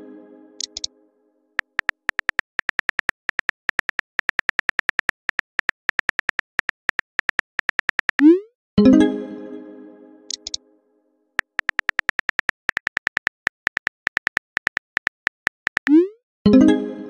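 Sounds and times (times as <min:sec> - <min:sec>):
phone keyboard typing clicks: 0:00.6 - 0:00.9, 0:01.6 - 0:08.3, 0:10.3 - 0:10.6, 0:11.4 - 0:16.0.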